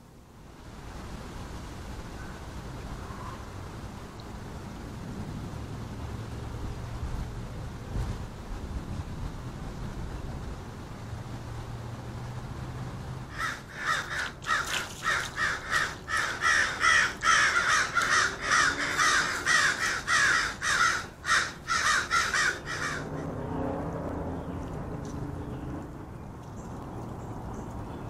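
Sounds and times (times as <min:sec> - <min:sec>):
crows cawing: 0:13.3 - 0:23.2.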